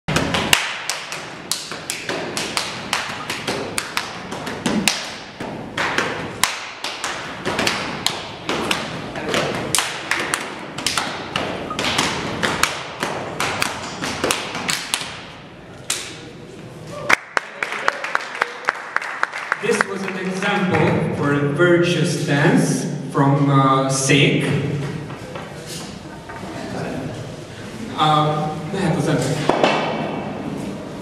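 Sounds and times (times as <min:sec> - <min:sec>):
sharp slaps and knocks: 0:00.1 - 0:16.2, 0:29.4 - 0:30.3.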